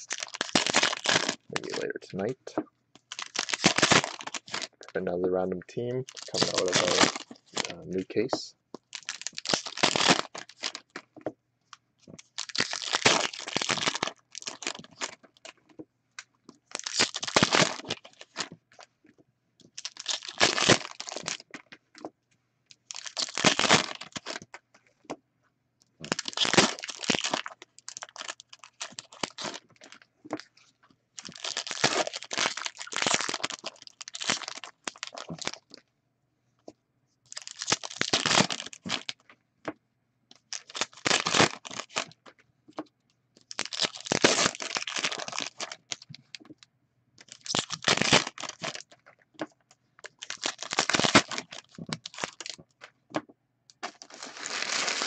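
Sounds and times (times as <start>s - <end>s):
packaging tearing and crinkling: 0.0s - 1.9s, 3.0s - 4.9s, 6.1s - 11.0s, 12.2s - 15.6s, 16.7s - 18.5s, 19.7s - 21.5s, 22.8s - 24.5s, 26.0s - 30.0s, 31.2s - 35.6s, 37.3s - 39.2s, 40.4s - 42.2s, 43.4s - 46.4s, 47.2s - 49.1s, 50.0s - 52.8s, 53.8s - 55.0s.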